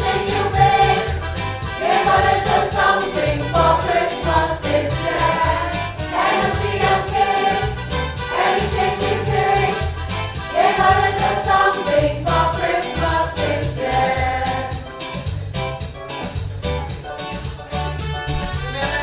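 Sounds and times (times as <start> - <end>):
choir singing: 0.0 - 14.8
keyboard backing with bass line: 0.0 - 19.0.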